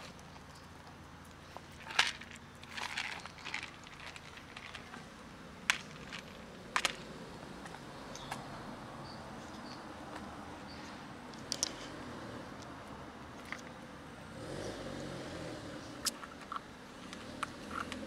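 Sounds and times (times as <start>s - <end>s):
plastic box with kibble rattling: 1.7s - 7.1s.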